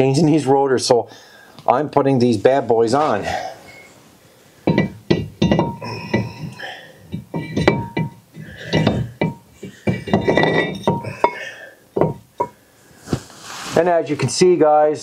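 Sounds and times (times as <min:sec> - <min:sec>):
metal knocks with bell-like ring: 0:04.7 - 0:06.4, 0:07.2 - 0:11.4.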